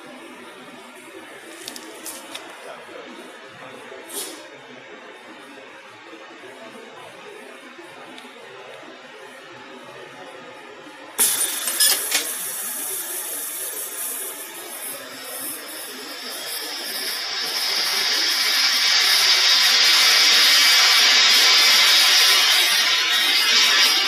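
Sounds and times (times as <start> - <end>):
drill cutting into metal: 11.2 - 24.0.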